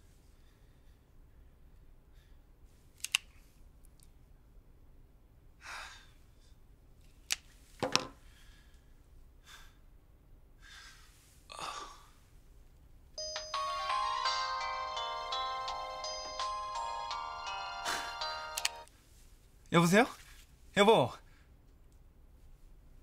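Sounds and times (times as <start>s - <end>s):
person breathing: 8.2s - 9.8s, 10.6s - 12.2s, 17.6s - 18.5s
phone ringtone melody: 13.2s - 18.9s
person sighing: 17.7s - 18.4s
handset clicks: 18.4s - 18.9s.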